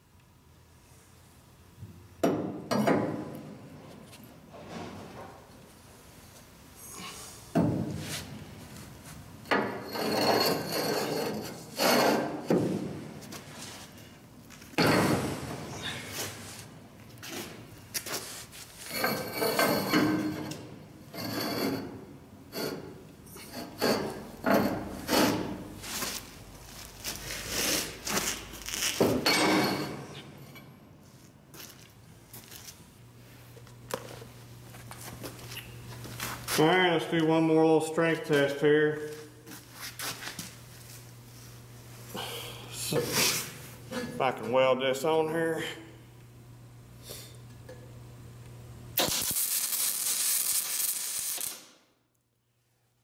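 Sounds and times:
pipe scraping against steel plate: 0:09.5 - 0:12.6, 0:18.8 - 0:25.8.

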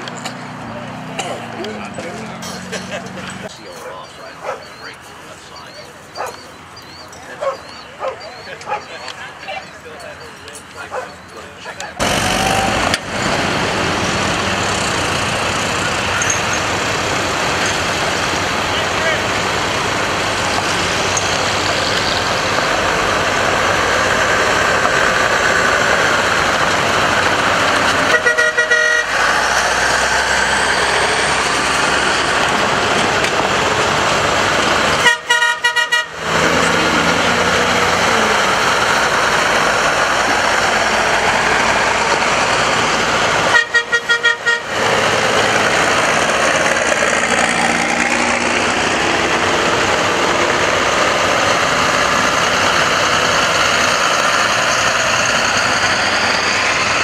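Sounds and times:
trucks driving past: 0:00.0 - 0:57.0
vehicle horn toots: 0:28.1 - 0:29.2, 0:35.0 - 0:36.7, 0:43.5 - 0:44.8.

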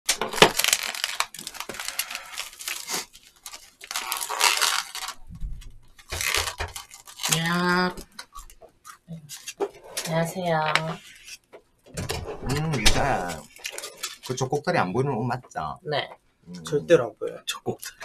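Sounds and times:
plastic wrap tearing and crinkling: 0:00.1 - 0:11.4, 0:12.4 - 0:14.5.

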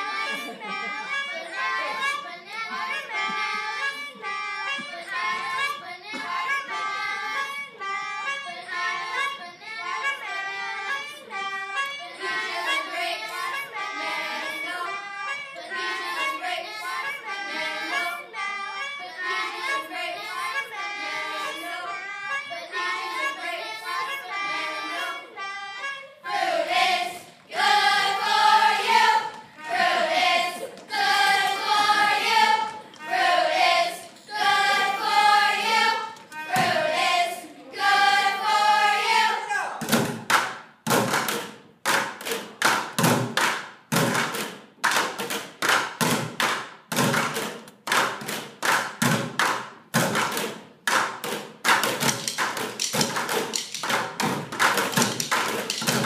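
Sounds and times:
children's chorus singing: 0:00.0 - 0:39.8
drumming on plastic buckets: 0:39.8 - 0:56.0.

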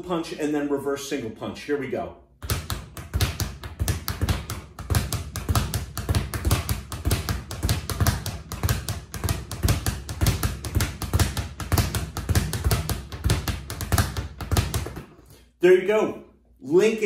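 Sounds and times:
speed bag rapid rattle: 0:02.4 - 0:15.0
fist striking bag: 0:02.4 - 0:15.1.

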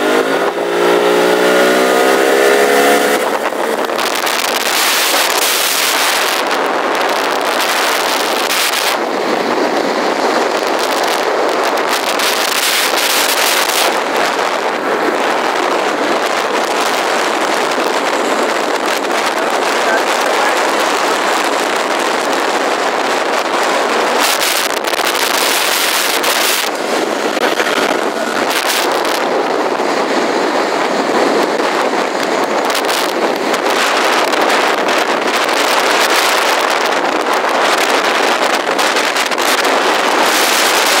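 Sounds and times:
boat engine: 0:00.0 - 0:41.0
wind on microphone: 0:00.0 - 0:41.0
water rushing along hull: 0:03.2 - 0:41.0.

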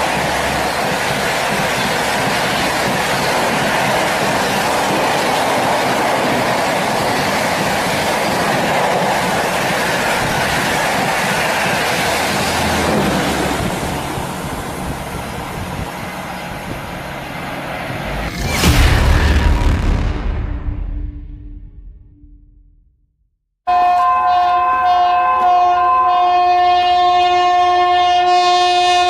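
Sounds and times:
train wheels rushing on rails: 0:00.0 - 0:19.5.

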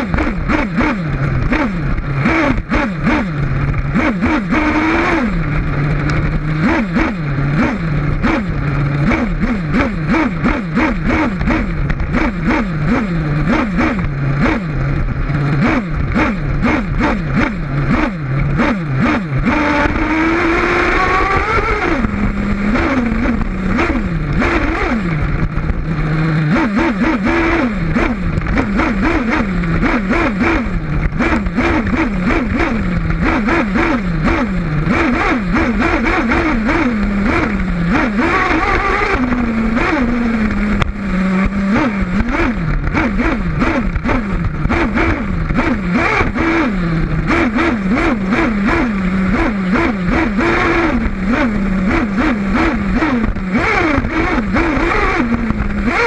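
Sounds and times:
chassis and tyres rattling on dirt: 0:00.0 - 0:56.0
small engine revving: 0:00.0 - 0:56.0.

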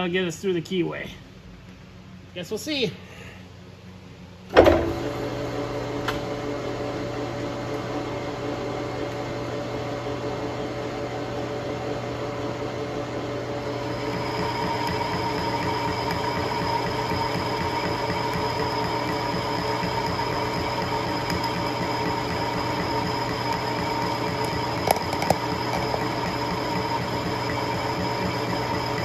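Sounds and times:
lathe starting clunk: 0:04.5 - 0:05.2, 0:13.9 - 0:29.0
lathe motor humming: 0:06.5 - 0:29.0
high whine: 0:13.7 - 0:29.0.

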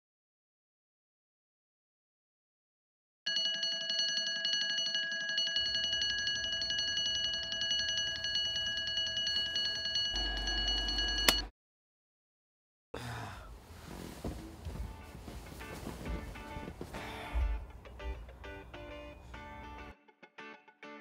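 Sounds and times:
alarm clock electronic beeping: 0:03.3 - 0:11.5.

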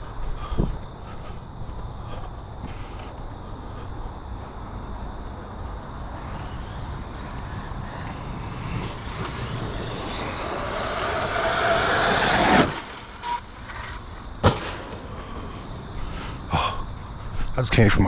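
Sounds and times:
electric motor whining: 0:06.1 - 0:14.3.

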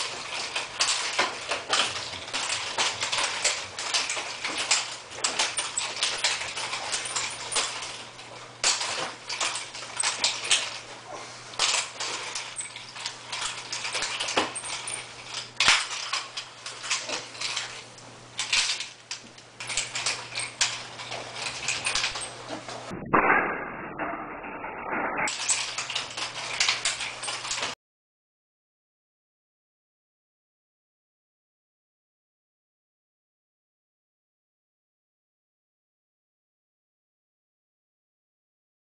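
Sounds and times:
metal chain rattling and clinking: 0:00.0 - 0:22.9, 0:25.2 - 0:27.8
low hum: 0:09.2 - 0:27.1.

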